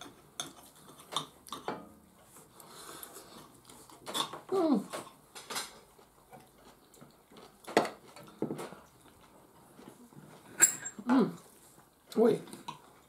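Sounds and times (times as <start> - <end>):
cutlery clinking on plates: 0.0 - 2.0, 10.5 - 11.0.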